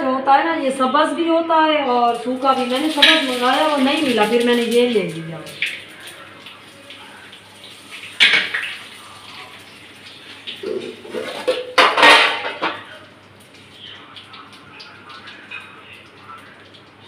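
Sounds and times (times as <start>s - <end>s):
spices frying in hot oil: 2.0s - 17.0s
dishes and utensils clattering: 7.9s - 8.9s, 10.5s - 13.0s.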